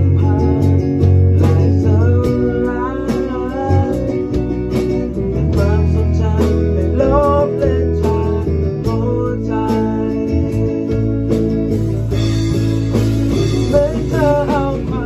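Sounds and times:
gliding electric guitar lines: 0:00.0 - 0:15.0
held bass notes: 0:00.0 - 0:15.0
rock band playing live: 0:00.0 - 0:15.0
drum hits: 0:11.0 - 0:15.0.

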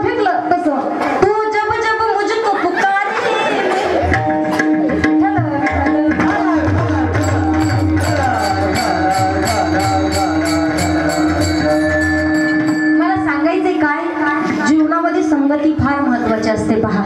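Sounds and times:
hand drum beat: 0:04.0 - 0:13.6
person singing: 0:04.1 - 0:12.8
held drone note: 0:07.3 - 0:13.4
brass hand cymbals clashing: 0:07.5 - 0:13.6.

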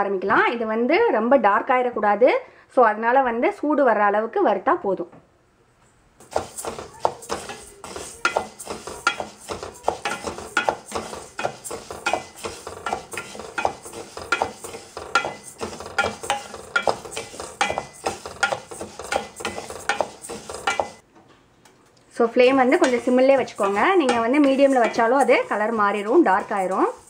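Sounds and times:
dry grains rattling in a metal pan: 0:06.2 - 0:21.0, 0:22.6 - 0:27.0.

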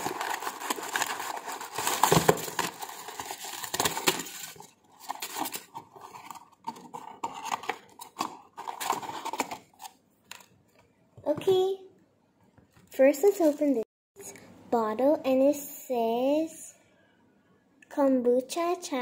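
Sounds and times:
packaging and tissue paper crinkling: 0:00.0 - 0:09.9.

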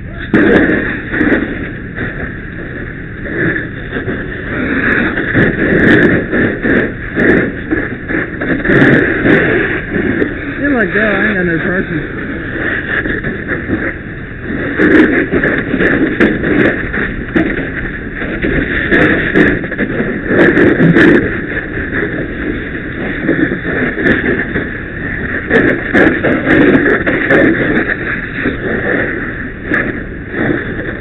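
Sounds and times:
fire crackling: 0:00.0 - 0:31.0
fire hose water rushing: 0:00.0 - 0:31.0.

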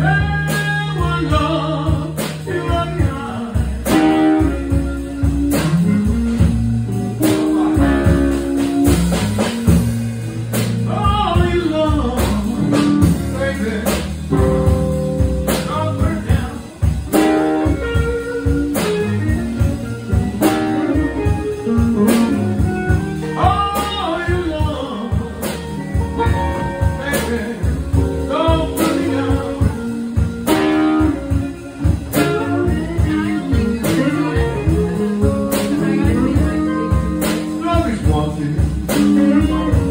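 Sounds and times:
person singing: 0:00.0 - 0:04.6, 0:10.8 - 0:14.1, 0:23.2 - 0:25.6, 0:26.3 - 0:31.4, 0:32.1 - 0:39.9
live blues band: 0:00.0 - 0:39.9.

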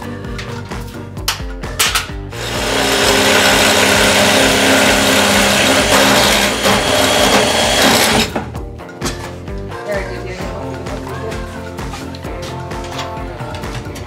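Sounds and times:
electric drill grinding metal: 0:02.3 - 0:08.4.

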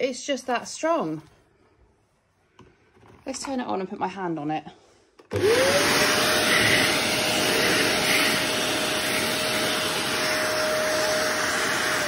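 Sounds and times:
vacuum cleaner motor whine: 0:05.2 - 0:12.0.

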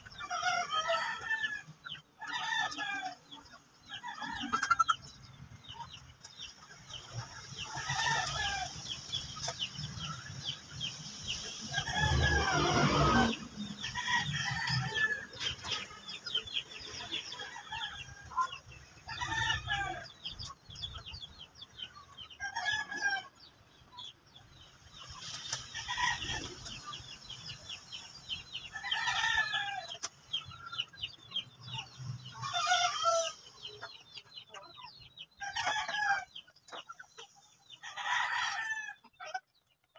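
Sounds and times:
roosters crowing: 0:00.0 - 0:05.2, 0:07.6 - 0:09.2, 0:11.3 - 0:20.8, 0:22.2 - 0:23.5, 0:25.5 - 0:30.8, 0:31.6 - 0:34.0, 0:35.4 - 0:36.5, 0:37.7 - 0:39.4
hens clucking: 0:00.0 - 0:39.9.

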